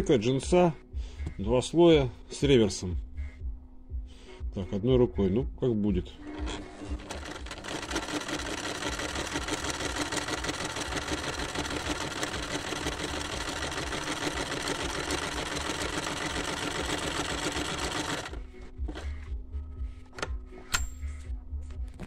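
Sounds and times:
sewing machine running: 6.2 - 19.0.

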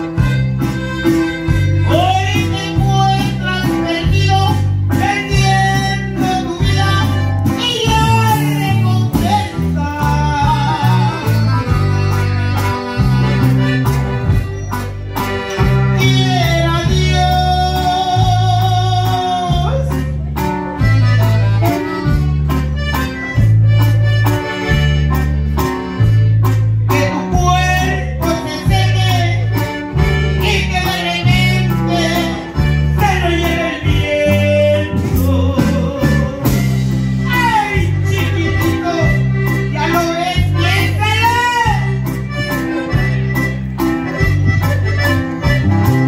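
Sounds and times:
bass line: 0.0 - 46.0
latin corrido music: 0.0 - 46.0
reedy lead melody: 0.0 - 46.0
person singing: 1.9 - 11.8, 15.8 - 20.3, 26.9 - 42.9.

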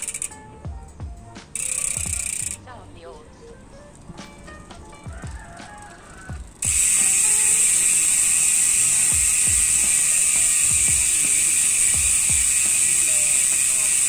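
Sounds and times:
bicycle hub freewheel ratcheting buzz: 0.0 - 2.7, 3.4 - 14.0.

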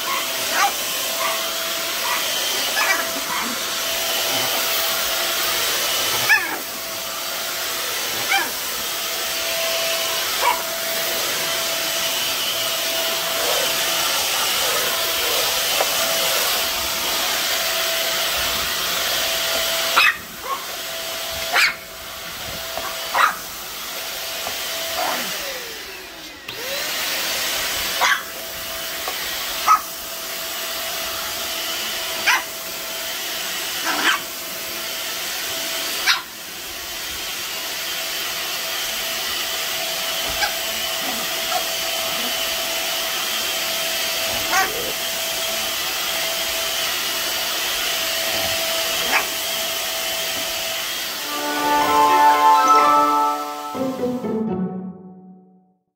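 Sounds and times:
small dog barking: 0.0 - 3.6, 6.1 - 6.7, 8.2 - 8.6, 10.4 - 10.7, 19.9 - 20.7, 21.5 - 21.8, 22.8 - 23.4, 25.0 - 25.3, 28.0 - 28.4, 29.6 - 29.9, 32.2 - 32.5, 33.8 - 34.3, 36.0 - 36.3, 40.2 - 42.4, 44.3 - 45.0, 48.9 - 49.4
stick vacuum cleaner running: 0.0 - 54.4.

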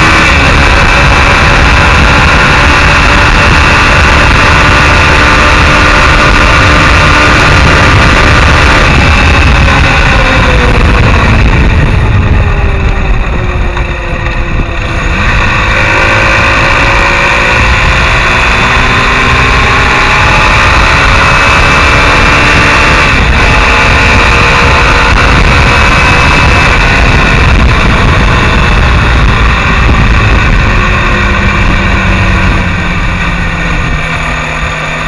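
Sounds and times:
motorcycle engine: 0.0 - 35.0
wind noise on microphone: 0.0 - 35.0.

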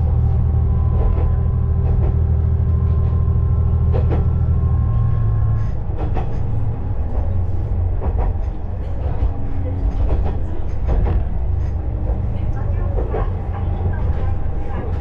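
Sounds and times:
railcar engine drone: 0.0 - 15.0
clicks from rail joints: 5.6 - 15.0.

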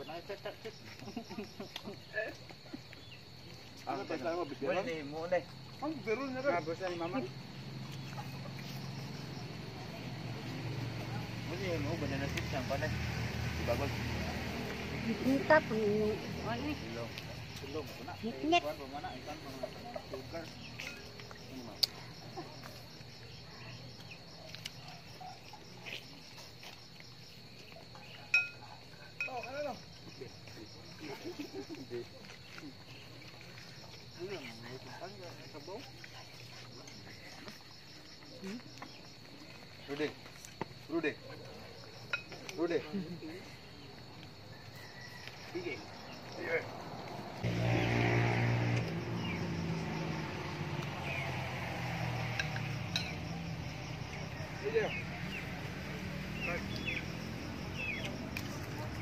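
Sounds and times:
insects chirping: 0.0 - 59.0
engine humming: 5.6 - 21.7, 45.5 - 59.0.

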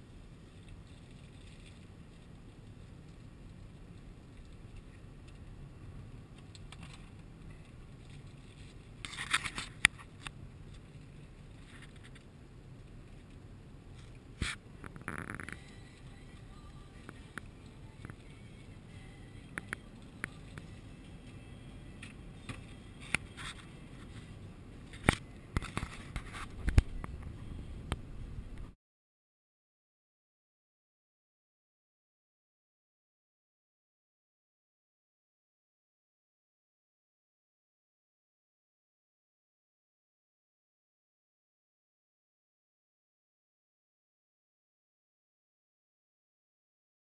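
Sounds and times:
car road and engine noise: 0.0 - 28.8.

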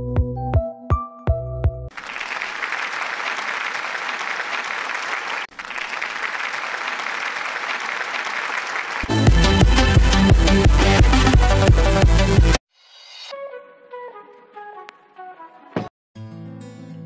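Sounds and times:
crowd applause: 1.9 - 11.4.

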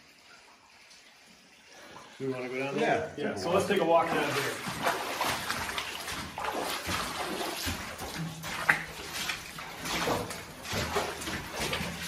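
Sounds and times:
footsteps splashing through water: 3.9 - 12.0.

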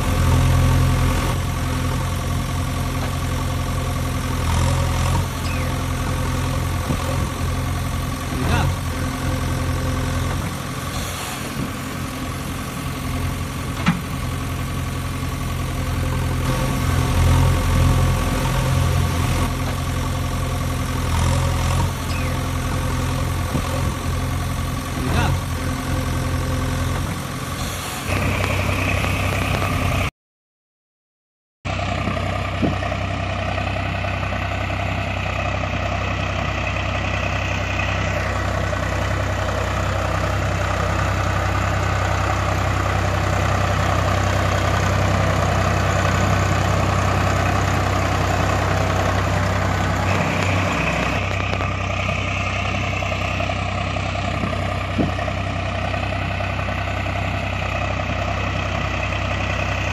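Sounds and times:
tractor engine idling: 0.0 - 30.1, 31.7 - 59.9.

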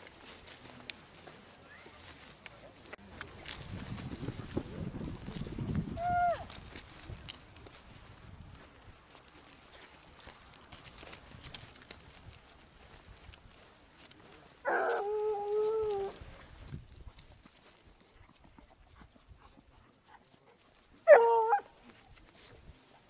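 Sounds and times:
hound baying: 14.6 - 16.2, 21.0 - 21.7.

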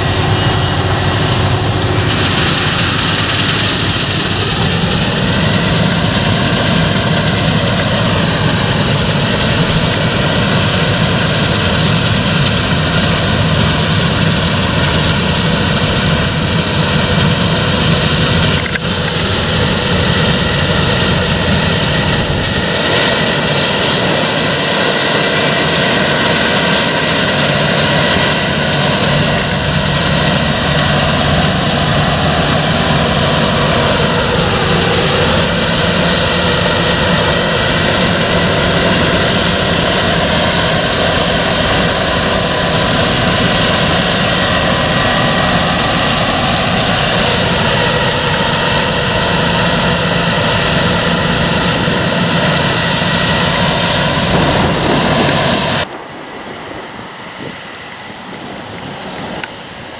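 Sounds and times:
combine harvester drone: 0.0 - 59.9
high machine whine: 0.0 - 59.9.

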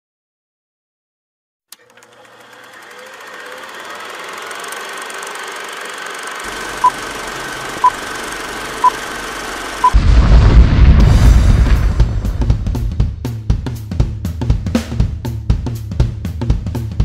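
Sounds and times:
film projector whining: 1.7 - 10.0.

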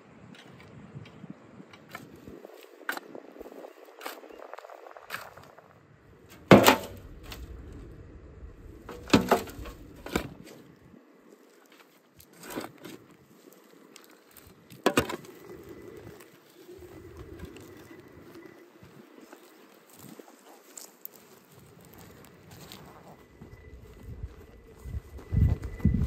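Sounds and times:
dirt thudding into metal wheelbarrow: 6.3 - 7.6, 8.8 - 10.6
shovel digging soil: 6.3 - 7.6, 8.9 - 10.6.

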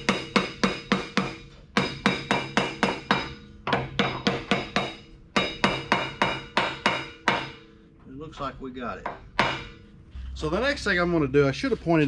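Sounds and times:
hammer striking metal ringing: 0.0 - 7.9, 9.0 - 9.9.

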